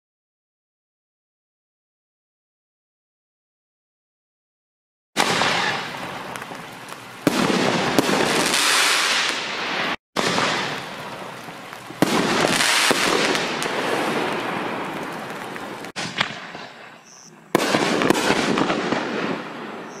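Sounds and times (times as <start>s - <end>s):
firework crackling hiss: 5.2s - 20.0s.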